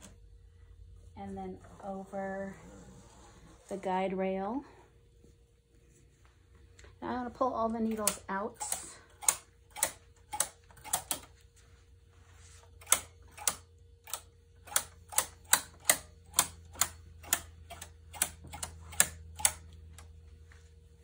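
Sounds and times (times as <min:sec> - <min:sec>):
knitting machine needles clicking: 0:07.8 - 0:11.4, 0:12.7 - 0:20.1.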